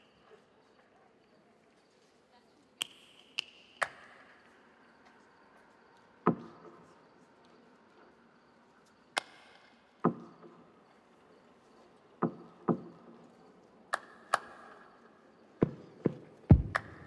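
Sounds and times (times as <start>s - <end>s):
percussive knocks and taps: 10.1s - 10.3s, 15.6s - 17.0s.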